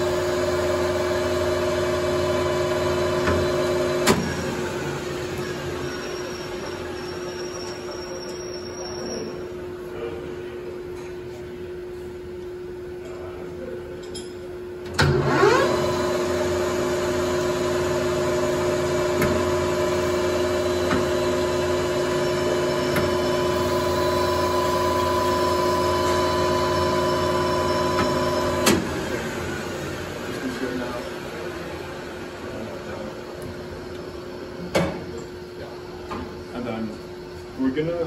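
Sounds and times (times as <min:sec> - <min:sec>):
lathe shutting off clunk: 0:00.0 - 0:05.9, 0:14.8 - 0:29.2
metal lathe running: 0:00.0 - 0:08.8, 0:15.2 - 0:32.4.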